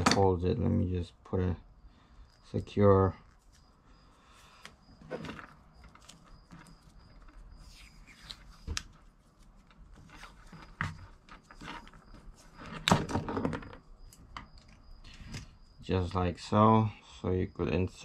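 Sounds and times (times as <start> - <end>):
electrical tape clicks and rustles: 4.6 - 15.5.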